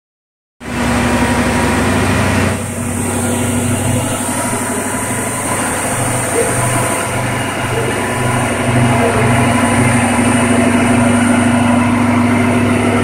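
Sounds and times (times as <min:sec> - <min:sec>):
car engine idling: 0:00.7 - 0:13.0.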